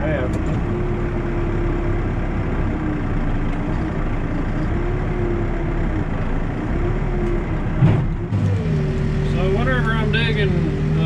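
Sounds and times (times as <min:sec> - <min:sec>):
diesel engine low drone: 0:00.0 - 0:11.0.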